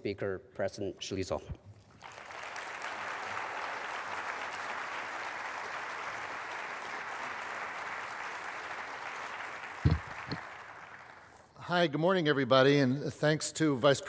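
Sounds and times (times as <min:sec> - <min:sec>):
audience applauding: 0:02.0 - 0:11.4
low thumps on microphone: 0:09.8 - 0:10.4.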